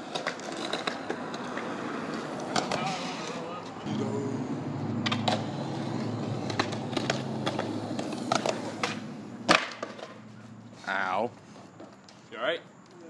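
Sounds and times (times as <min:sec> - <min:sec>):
skater crashing onto paving: 0:00.0 - 0:03.6, 0:05.0 - 0:10.4
skateboard clicks: 0:00.0 - 0:03.8, 0:05.0 - 0:10.3
skateboard wheels rolling on concrete: 0:00.0 - 0:13.0.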